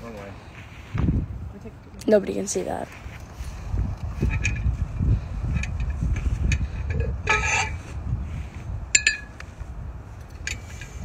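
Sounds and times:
steady low rumble: 0:00.0 - 0:11.0
weight plates clinking: 0:09.0 - 0:09.4.

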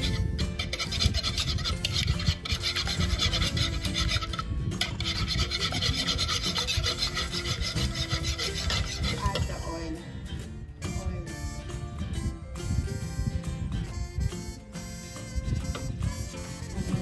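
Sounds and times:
whisk beating eggs in bowl: 0:00.0 - 0:09.6.

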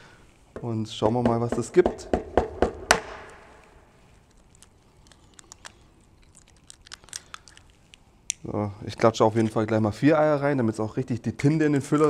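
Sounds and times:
eggshell cracking: 0:03.2 - 0:08.5.

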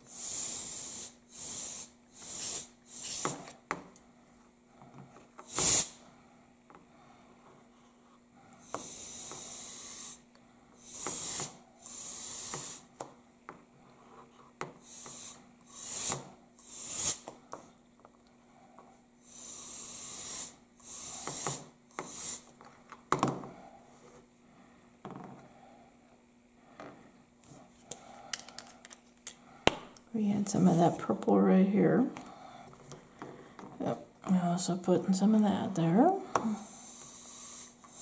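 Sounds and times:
compressed air hissing spurts: 0:00.0 - 0:03.6, 0:05.4 - 0:06.0, 0:08.6 - 0:12.9, 0:14.8 - 0:17.3, 0:19.2 - 0:22.5, 0:36.4 - 0:38.0.

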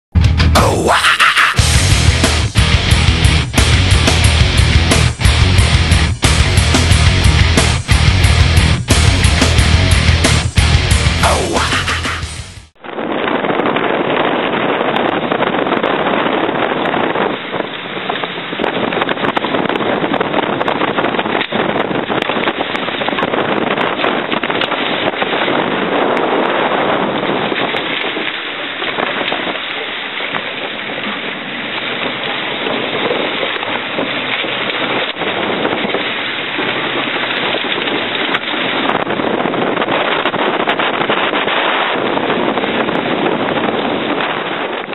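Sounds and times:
wind buffeting microphone: 0:00.1 - 0:44.9.

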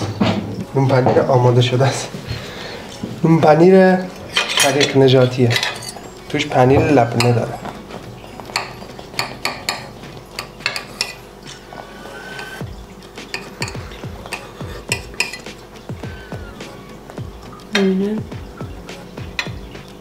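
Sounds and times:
cutlery clinking and scraping plate: 0:04.0 - 0:12.6, 0:13.2 - 0:15.7, 0:19.4 - 0:19.8.

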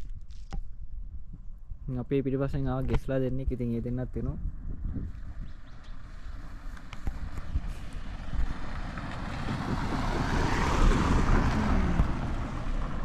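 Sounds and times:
wind buffeting microphone: 0:00.0 - 0:13.0
vehicle passing by: 0:05.6 - 0:13.0.

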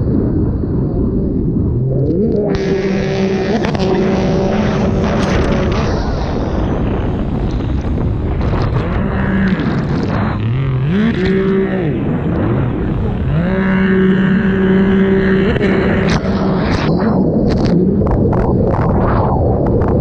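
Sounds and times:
wind on microphone: 0:00.0 - 0:20.0
jet ski engine revving: 0:02.0 - 0:17.7.

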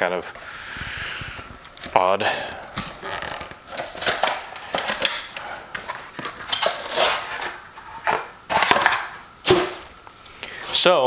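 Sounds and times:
packaging crinkling and rustling: 0:02.7 - 0:09.9.

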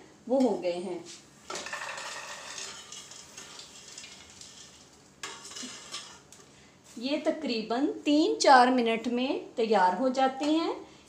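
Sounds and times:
popcorn rustling and sliding: 0:01.6 - 0:06.3
spoon scraping metal pot: 0:01.6 - 0:06.3.

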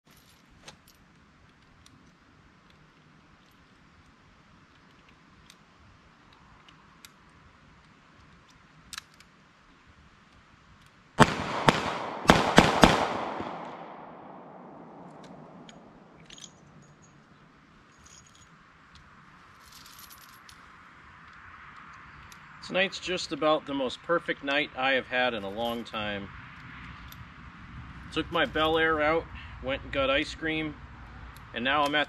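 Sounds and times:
revolver gunshots echoing: 0:11.2 - 0:16.2.

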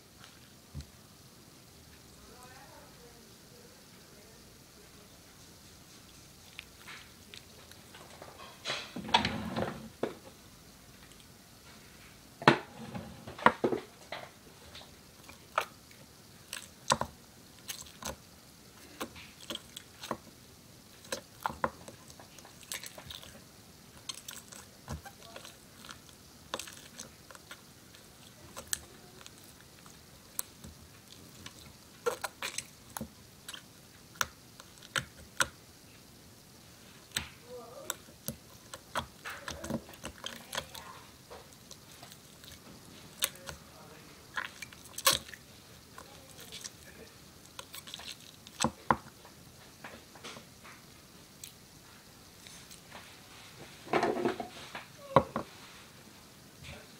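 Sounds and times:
putty squelching and popping: 0:14.6 - 0:18.2, 0:18.8 - 0:51.6.

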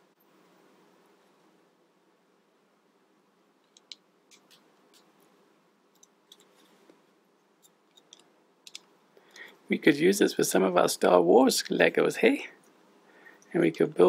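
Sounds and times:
plastic building blocks clicking: 0:07.9 - 0:08.9.

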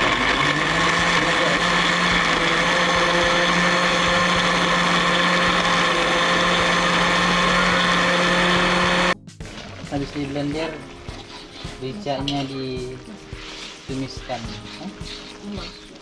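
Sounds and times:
electric blender running: 0:00.0 - 0:09.2.

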